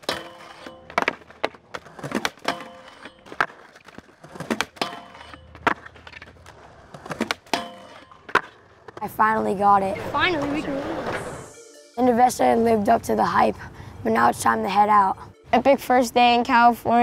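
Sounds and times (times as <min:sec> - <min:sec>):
metal rail ringing: 0:00.0 - 0:01.2, 0:02.4 - 0:03.4, 0:04.8 - 0:05.7, 0:07.4 - 0:08.4
skateboard clacking on rail: 0:00.0 - 0:09.0
skateboard clattering away: 0:00.0 - 0:09.0
skateboard wheels rolling: 0:00.0 - 0:11.5.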